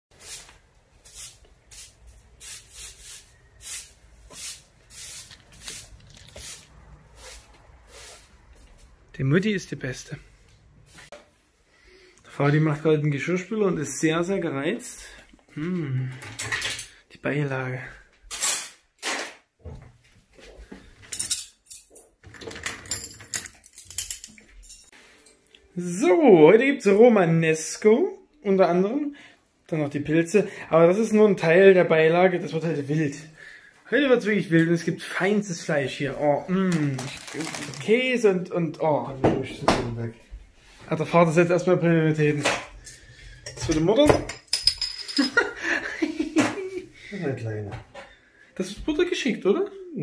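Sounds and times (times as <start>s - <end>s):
broom sweeping stone tiles: 0.1s - 9.0s, 10.8s - 11.1s
cutlery rattling in drawer: 21.0s - 24.9s.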